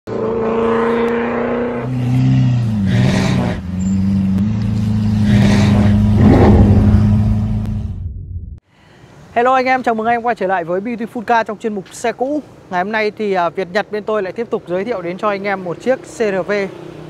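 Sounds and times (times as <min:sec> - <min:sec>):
rushing whooshes: 0:05.7 - 0:08.2.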